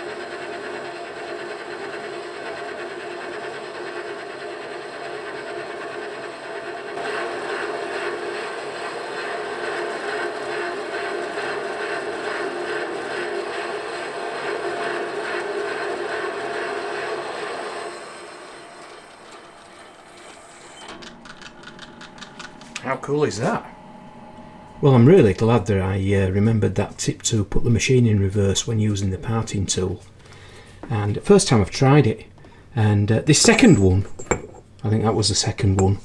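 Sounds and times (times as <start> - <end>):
metal lathe cutting: 0.0 - 21.0
clicks: 20.8 - 22.9.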